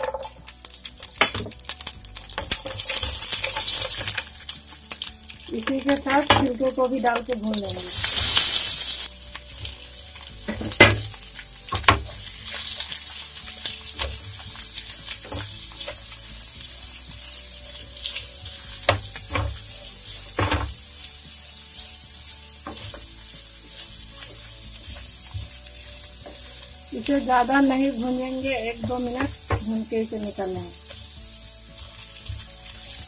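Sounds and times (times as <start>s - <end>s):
frying in hot oil sizzling: 0.0s - 33.0s
wooden spatula knocking on pan: 10.5s - 11.1s, 20.4s - 20.8s, 28.8s - 29.7s.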